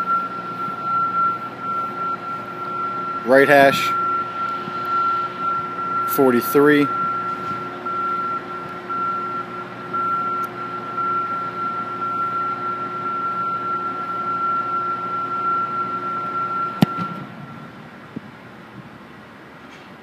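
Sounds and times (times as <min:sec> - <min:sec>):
mechanical hum with high whine: 0:00.0 - 0:20.0
foot kicking football thud: 0:16.8 - 0:17.3.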